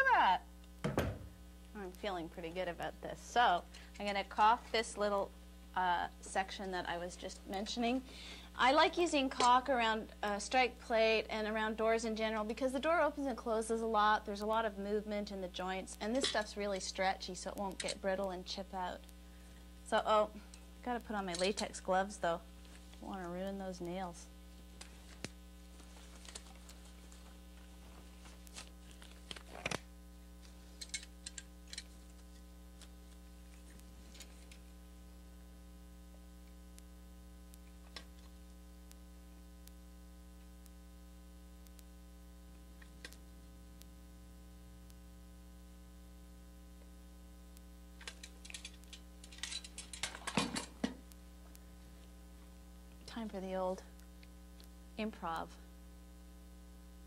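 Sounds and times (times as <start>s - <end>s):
electrical mains hum: 0.0s - 57.0s
latex gloves rustling: 24.5s - 29.8s.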